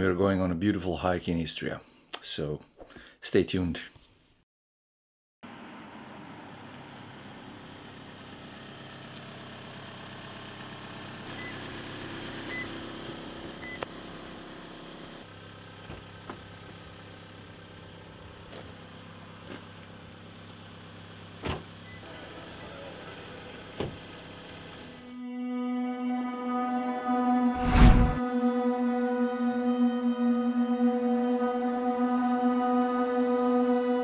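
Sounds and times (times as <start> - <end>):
car engine idling: 5.5 - 25.0.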